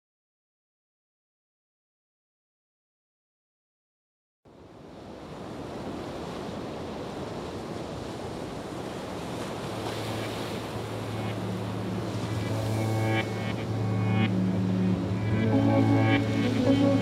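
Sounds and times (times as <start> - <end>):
steady rushing wash: 5.0 - 17.0
low steady drone: 10.2 - 17.0.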